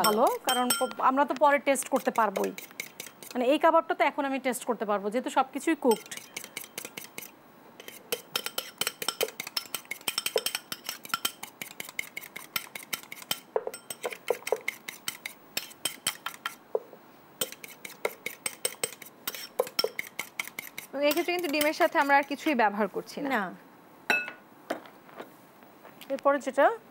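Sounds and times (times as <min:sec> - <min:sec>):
fork clinking against bowl: 0:00.0 - 0:01.1, 0:05.9 - 0:16.6, 0:17.4 - 0:22.5.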